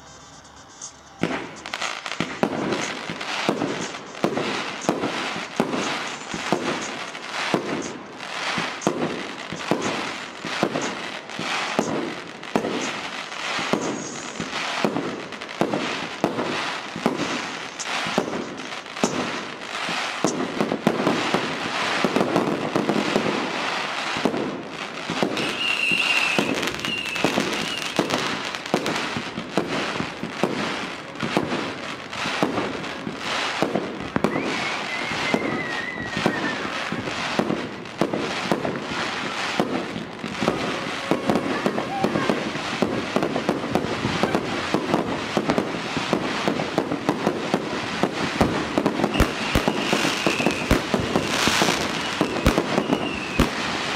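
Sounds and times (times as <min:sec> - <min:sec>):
firework whistle: 0:00.0 - 0:53.9
fireworks banging and crackling: 0:00.0 - 0:53.9.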